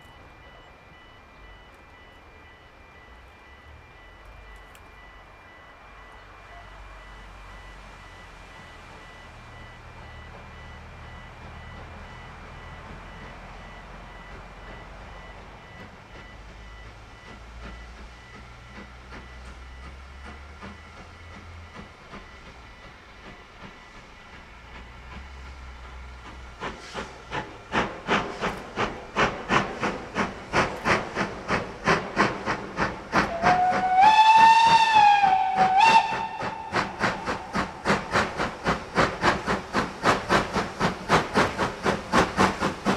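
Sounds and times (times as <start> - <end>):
steam locomotive chuffing: 0.0 - 42.9
locomotive whistle blast: 32.8 - 38.5.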